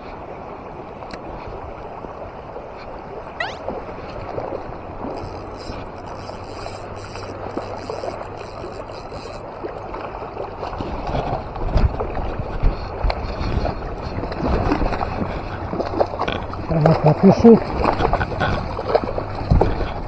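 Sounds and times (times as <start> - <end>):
river water rushing: 0.0 - 12.2.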